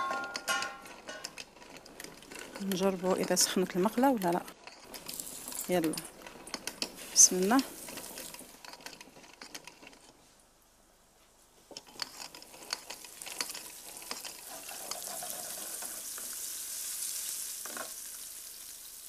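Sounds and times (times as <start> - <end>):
fish frying in hot oil: 12.5 - 19.0.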